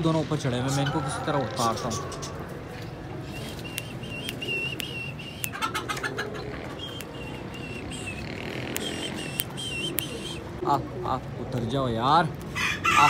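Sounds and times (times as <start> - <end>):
small bird chirping: 6.6 - 10.4.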